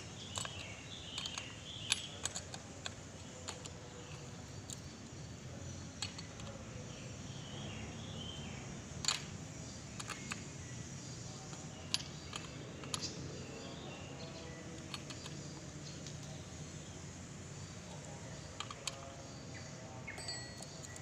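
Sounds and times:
low steady background noise: 0.0s - 21.0s
sharp metallic clicks and clanks: 0.2s - 5.3s, 9.0s - 10.5s, 11.4s - 16.4s.

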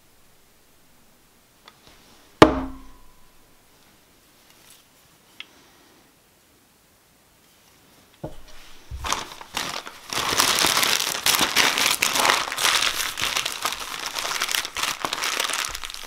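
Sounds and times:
paper crumpling and rustling: 8.4s - 16.0s.

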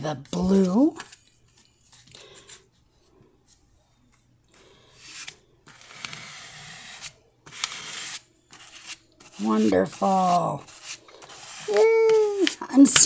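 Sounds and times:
plastic card scraping paste: 5.0s - 13.0s.

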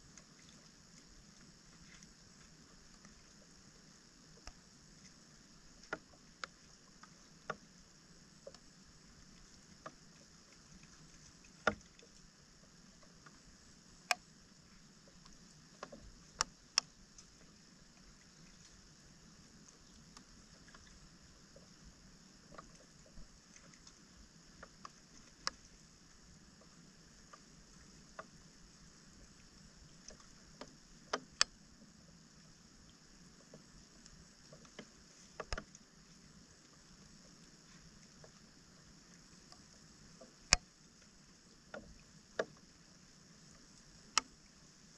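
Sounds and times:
faint steady hiss: 0.0s - 44.9s
water splashes: 0.0s - 44.9s.

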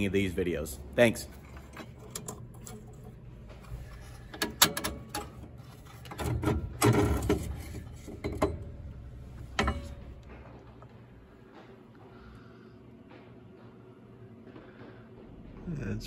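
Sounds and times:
metal clicks and scrapes: 1.2s - 10.5s.

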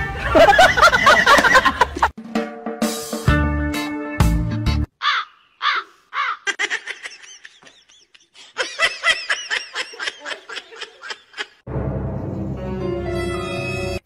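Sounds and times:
high-pitched giggling laughter: 6.2s - 11.6s.

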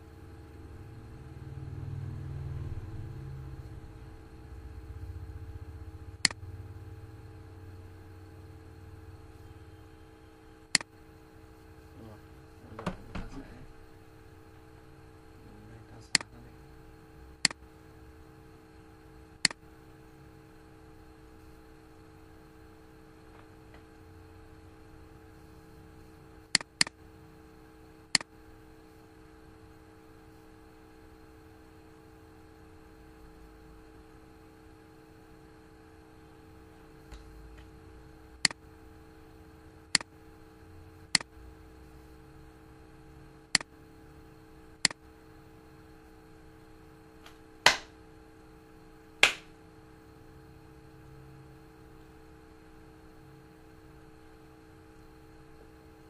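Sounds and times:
low electrical hum: 0.0s - 56.0s
computer mouse clicking: 26.6s - 27.0s.

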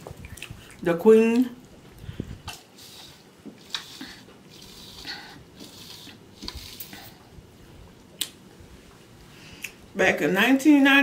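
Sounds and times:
sipping through a straw: 2.4s - 7.3s.

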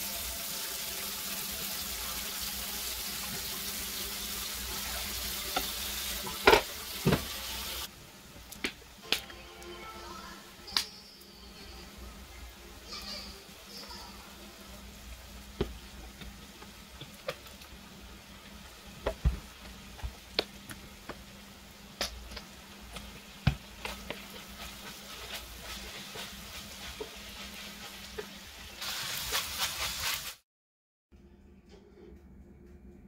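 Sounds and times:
meat frying in a skillet: 0.0s - 9.0s, 12.4s - 30.4s
wooden spoon scraping: 22.9s - 30.4s.

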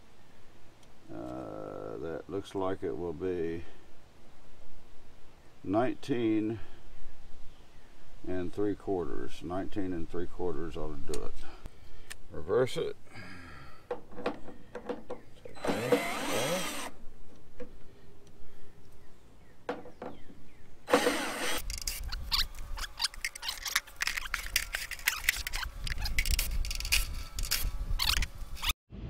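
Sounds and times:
drill motor whine: 15.6s - 17.0s, 20.9s - 21.6s.

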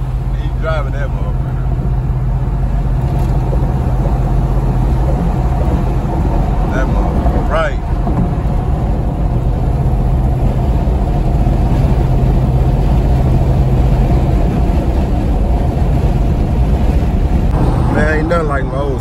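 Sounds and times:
car cabin road drone: 0.0s - 19.0s
low hum: 0.0s - 19.0s.

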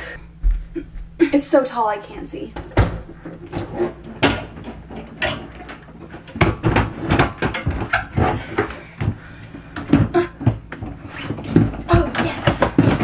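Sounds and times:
suitcase knocking and scraping on shelf: 2.6s - 9.2s, 9.8s - 13.0s.

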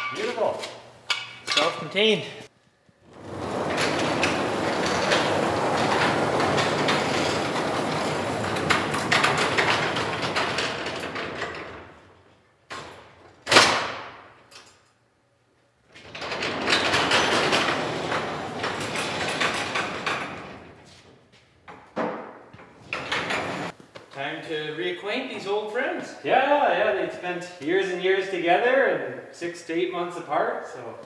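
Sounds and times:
crane trolley rolling rumble: 3.0s - 12.3s, 16.0s - 21.0s, 22.8s - 23.8s.

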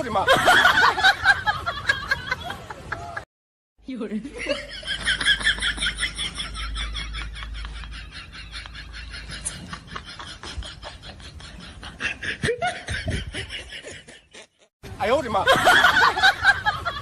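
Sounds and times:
rapid snickering laughter: 4.5s - 14.7s.

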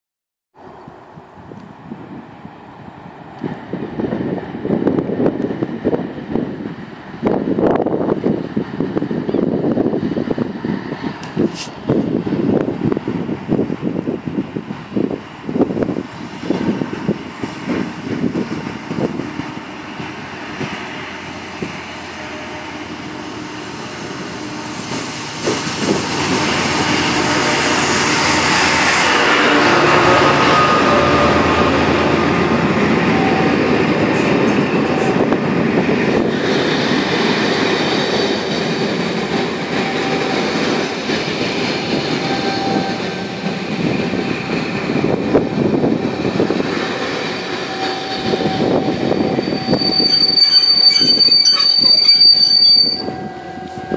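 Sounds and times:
train wheels rumbling on rails: 0.6s - 53.9s
faint wheel squeals: 47.8s - 53.8s.

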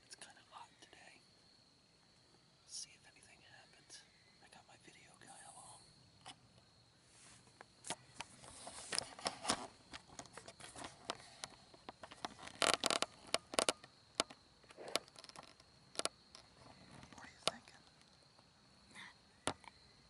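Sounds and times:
sharp clicks and scrapes: 7.8s - 17.6s
hands rubbing on camera: 8.3s - 9.7s.

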